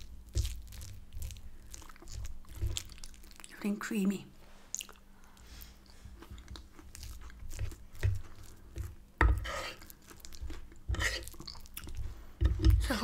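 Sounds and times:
wet chewing sounds: 0:00.0 - 0:03.8, 0:04.6 - 0:13.0
fork scraping wooden board: 0:09.2 - 0:11.4.

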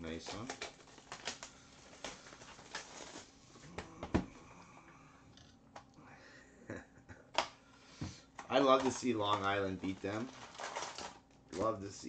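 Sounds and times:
plastic wrap crinkling: 0:00.0 - 0:03.4, 0:08.5 - 0:11.8.

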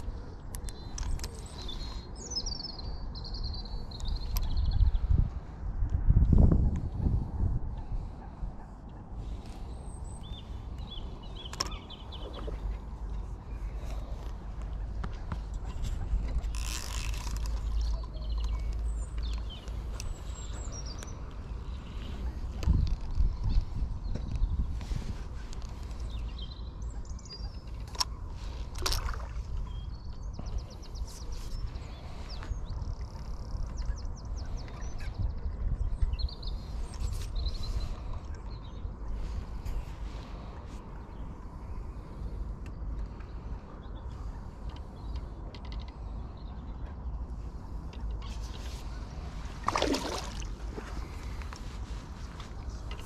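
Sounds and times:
songbirds chirping and trilling: 0:00.0 - 0:53.0
wind rumbling on microphone: 0:00.0 - 0:53.0
bird chirps: 0:09.9 - 0:12.7.

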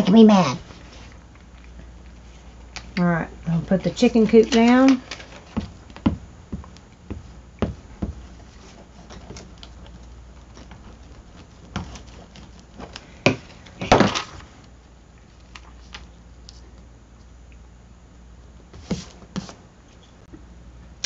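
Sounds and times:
paper rustling: 0:08.2 - 0:14.5.

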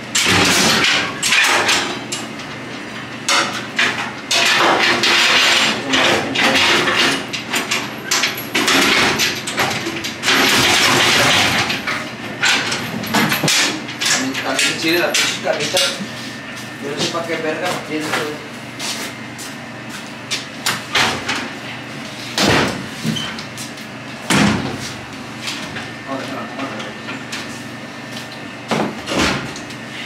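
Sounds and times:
knocks and clatter of hard objects: 0:03.3 - 0:16.0.

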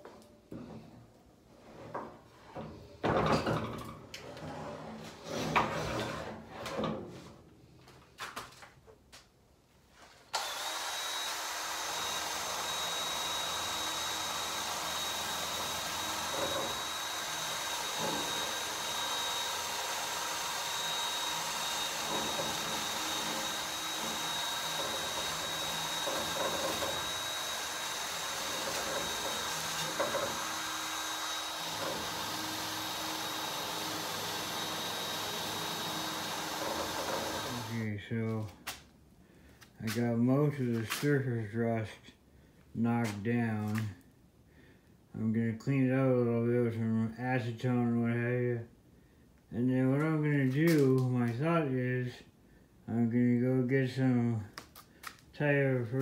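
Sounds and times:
cordless drill whining: 0:10.3 - 0:37.8.

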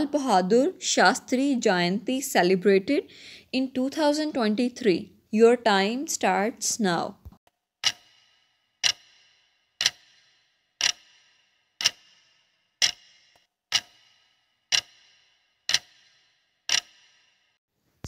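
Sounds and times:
countdown timer ticks: 0:07.8 - 0:17.5.

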